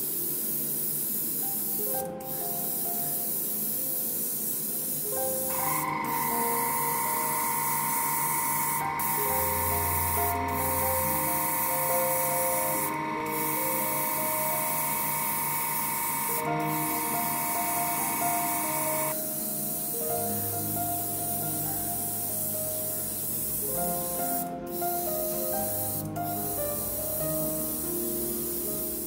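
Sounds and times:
airbrush spraying air hiss: 0.0 - 29.0
steady whine: 5.4 - 19.6.

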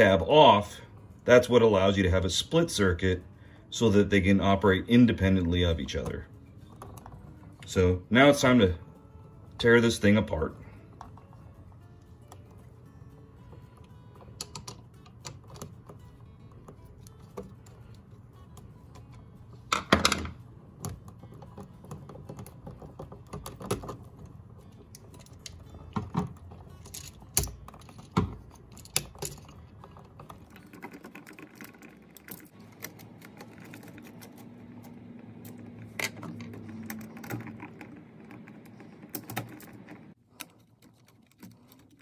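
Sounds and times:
screwdriver clicks and metallic taps: 14.3 - 16.0, 24.9 - 29.6.

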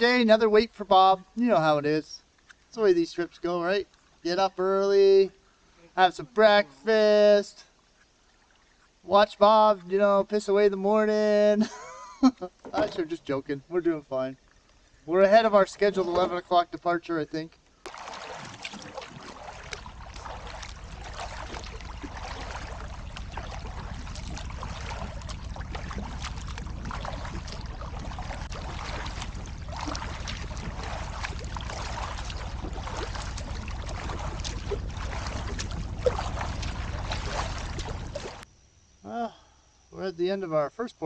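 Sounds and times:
water splashing and dripping: 7.7 - 9.1, 17.8 - 38.4
paddle stroking water: 17.8 - 38.4
wind rumble on microphone: 18.6 - 38.4.

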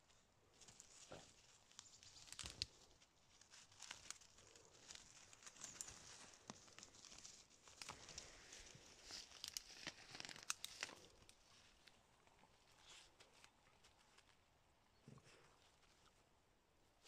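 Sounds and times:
dry leaves rustling and crackling: 0.5 - 11.9.

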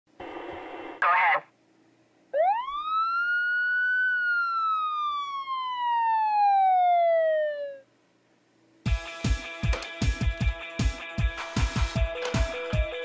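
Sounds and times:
siren wail: 2.4 - 7.9.

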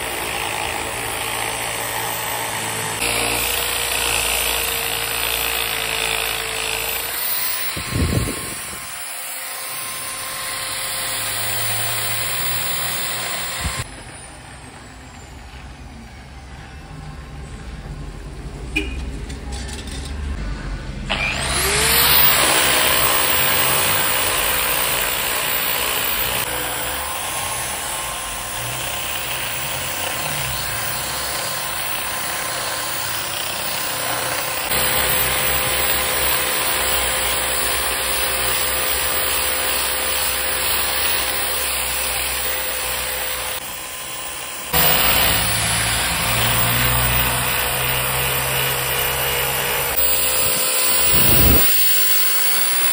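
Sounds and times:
angle grinder whine: 0.0 - 14.3, 21.1 - 52.9.

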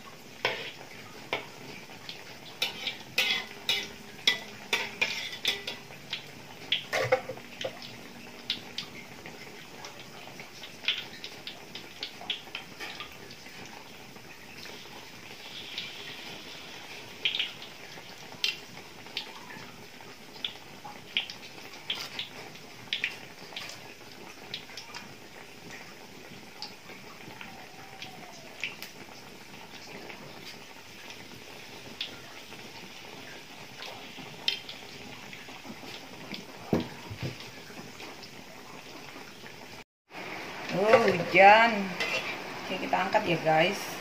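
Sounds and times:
food deep-frying in hot oil: 0.0 - 44.0.

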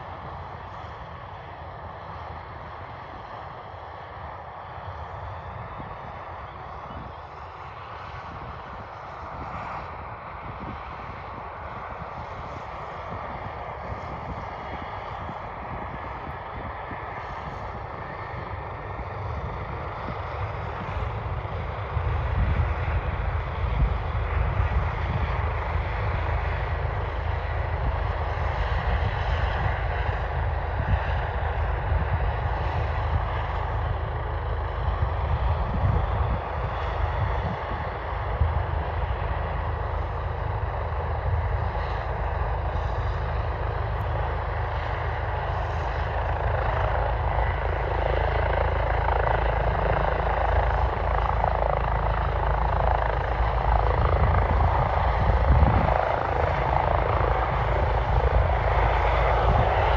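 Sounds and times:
helicopter rotor rumble: 0.0 - 59.9
helicopter turbine whine: 0.0 - 59.9.

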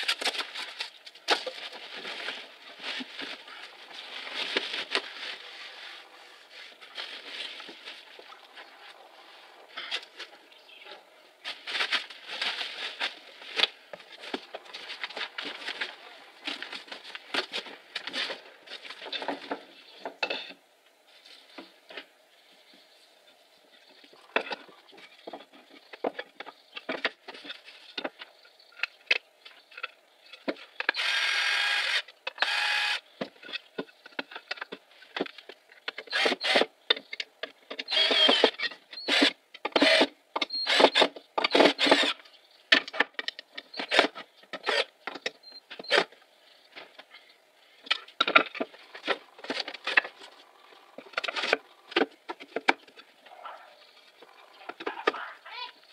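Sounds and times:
cordless drill driving screws: 31.0 - 33.0, 37.9 - 38.5.

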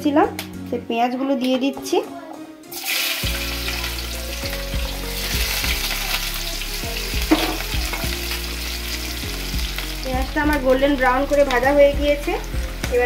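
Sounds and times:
onions sizzling in hot oil: 2.7 - 13.0.

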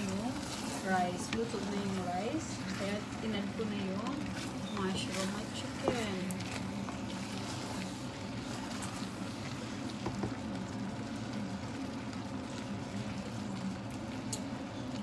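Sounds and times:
spatula stirring in a pot: 0.0 - 15.0.

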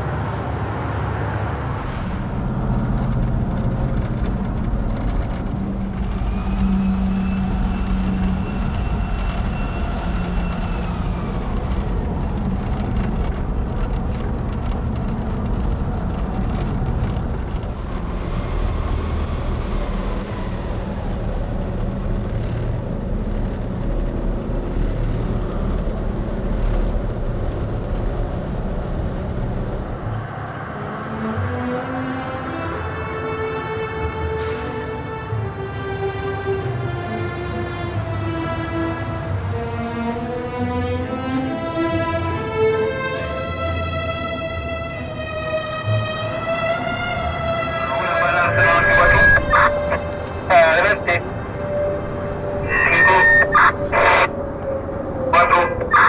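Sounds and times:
high engine whine: 0.0 - 30.9, 47.3 - 56.0
low truck engine rumble: 46.4 - 56.0.

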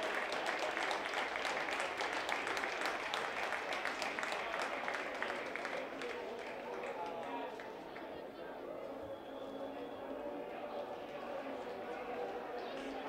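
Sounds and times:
crowd applauding: 0.0 - 8.2, 11.1 - 13.0.

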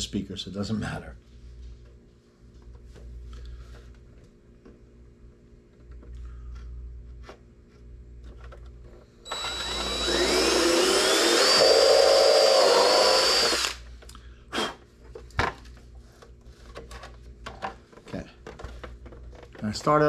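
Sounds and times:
cordless drill boring plastic: 9.3 - 13.8.

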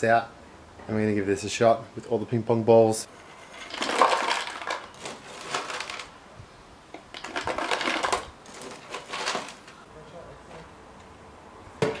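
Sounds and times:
dry ice rattling into plastic bottle: 3.6 - 6.1, 7.0 - 9.7.

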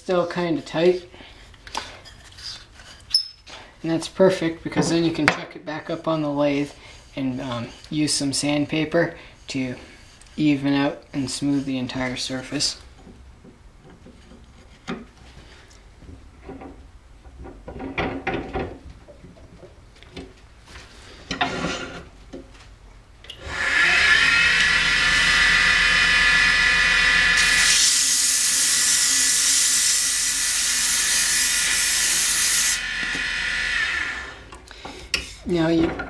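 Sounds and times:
knocks and clatter: 16.0 - 19.7
wood lathe motor whining: 23.3 - 34.5.

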